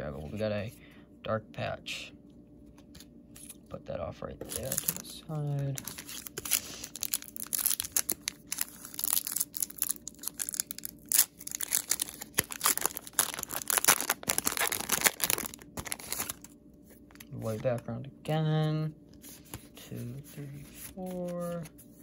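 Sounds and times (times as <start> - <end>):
foil wrapper crinkling and tearing: 4.4 - 16.5.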